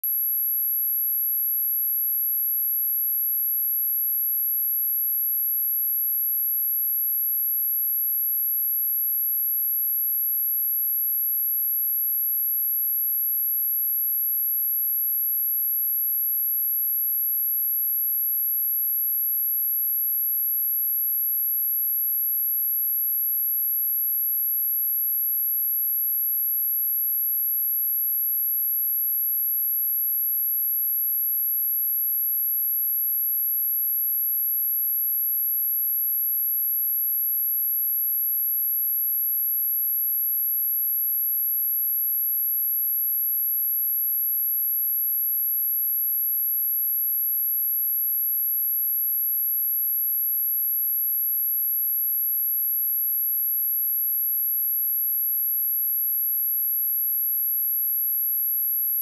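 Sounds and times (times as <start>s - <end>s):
high-pitched sine test tone: 0.1s - 1.0s, 58.8s - 59.0s.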